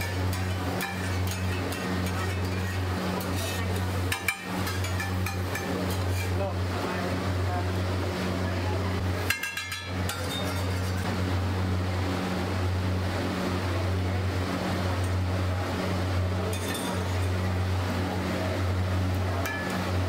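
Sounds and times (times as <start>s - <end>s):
spatula clattering on griddle: 0.0s - 6.4s, 9.2s - 11.1s, 19.4s - 19.8s
low mechanical hum: 0.0s - 20.0s.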